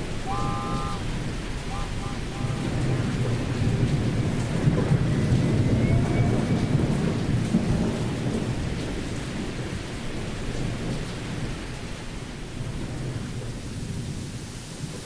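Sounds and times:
low rumbling: 0:00.0 - 0:08.0.

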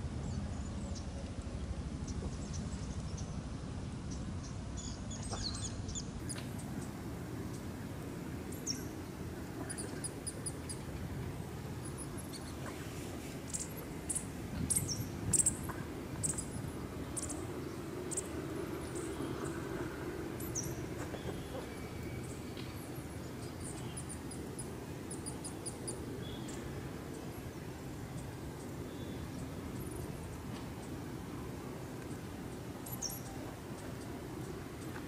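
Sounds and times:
low outdoor rumble: 0:00.0 - 0:35.0
small birds chirping: 0:08.4 - 0:31.0.

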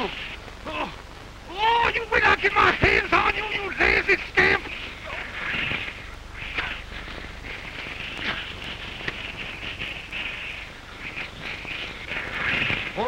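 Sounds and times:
crackling film soundtrack hiss: 0:00.0 - 0:13.0
faint clicks: 0:04.6 - 0:13.0.

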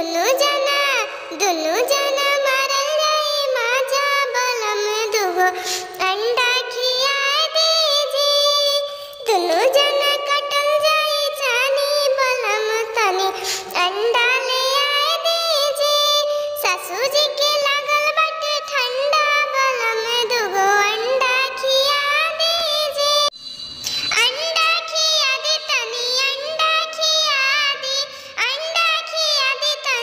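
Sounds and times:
high-pitched voice singing folk song: 0:00.0 - 0:23.3, 0:24.1 - 0:30.0.

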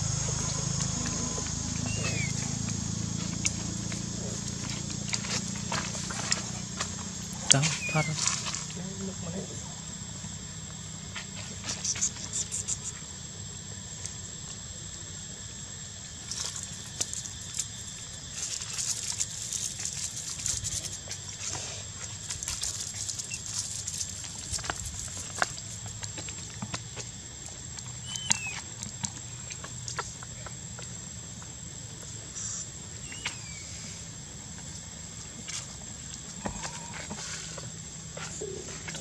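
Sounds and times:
high insect whine: 0:00.0 - 0:39.0
monkey squeak: 0:01.8 - 0:02.5, 0:07.6 - 0:08.2, 0:28.1 - 0:28.6.

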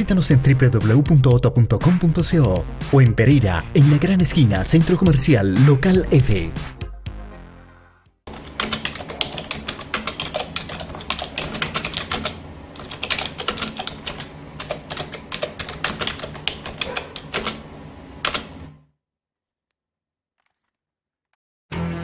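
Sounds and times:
rapid keyboard typing: 0:08.3 - 0:18.7.

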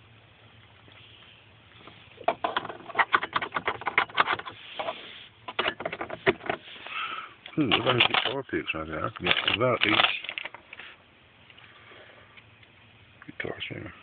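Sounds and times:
small objects clicking and rattling: 0:07.5 - 0:08.4, 0:09.0 - 0:10.9.

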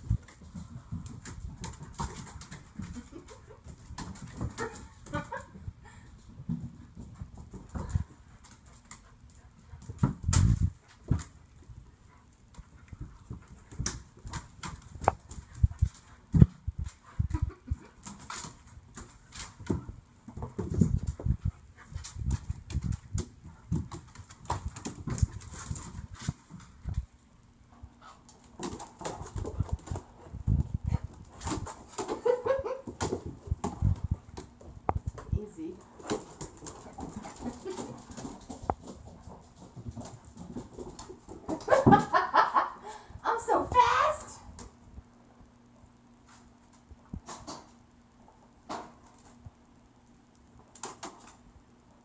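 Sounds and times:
dogs scuffling thumps: 0:00.0 - 0:05.6, 0:06.3 - 0:27.2, 0:27.9 - 0:42.3.

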